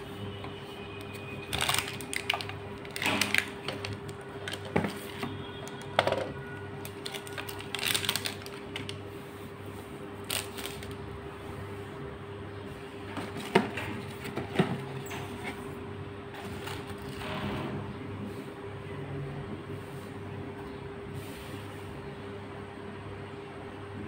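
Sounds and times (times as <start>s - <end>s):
plastic bag crinkling: 1.1s - 6.0s, 6.8s - 9.0s, 10.2s - 11.0s.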